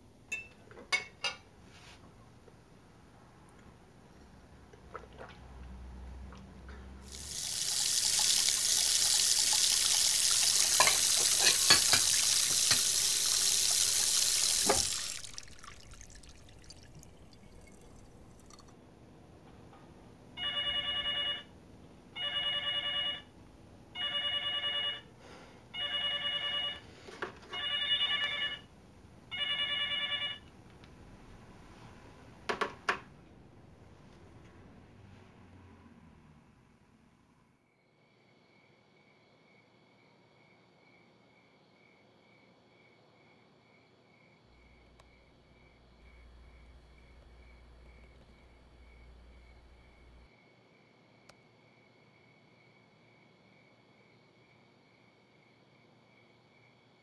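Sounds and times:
dishes clinking: 0.3 - 1.5, 10.6 - 12.9
tap running water: 7.0 - 18.7
telephone ringing: 20.4 - 21.6, 22.2 - 23.3, 23.9 - 25.1, 25.7 - 26.9, 27.5 - 28.7, 29.3 - 30.5.

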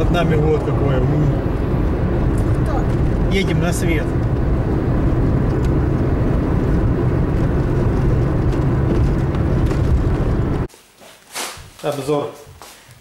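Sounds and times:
car road noise from inside: 0.0 - 10.7.

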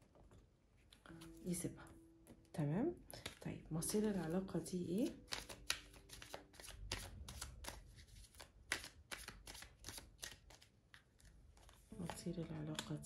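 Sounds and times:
cards being shuffled: 3.1 - 4.4, 5.0 - 13.0.

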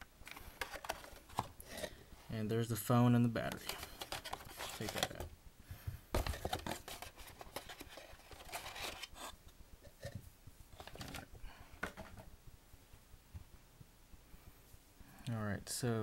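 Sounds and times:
rustling of plastic packaging: 3.5 - 5.3.

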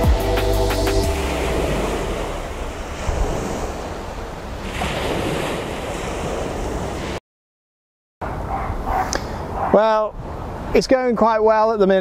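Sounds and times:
surf washing on shore: 1.1 - 7.2
wind buffeting microphone: 1.2 - 7.2.

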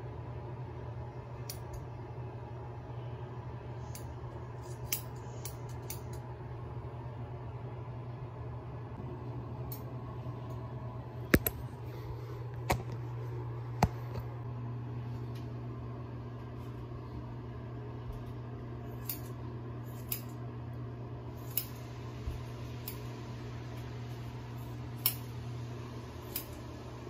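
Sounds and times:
steady low hum: 0.0 - 27.0
scissors snipping hair: 3.9 - 6.2, 18.9 - 20.4, 21.4 - 21.9, 25.0 - 25.3, 26.3 - 26.6.

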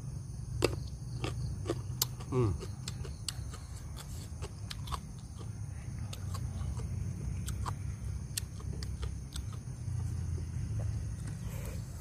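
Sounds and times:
steady low hum: 0.0 - 12.0
wet chewing mouth clicks: 1.2 - 9.6.

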